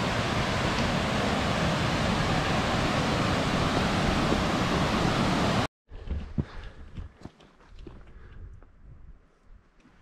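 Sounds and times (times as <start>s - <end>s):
stream rushing over boulders: 0.0s - 5.7s.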